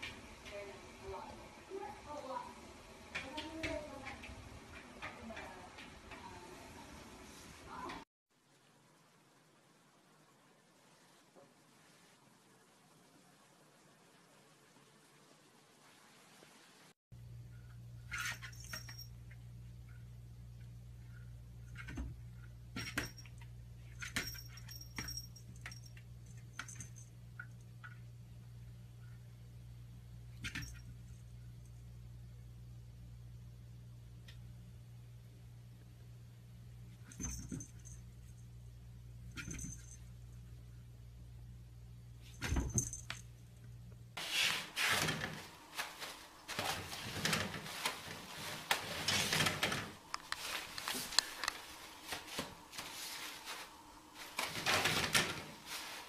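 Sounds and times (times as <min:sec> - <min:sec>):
rustling: 0:44.2 - 0:56.0.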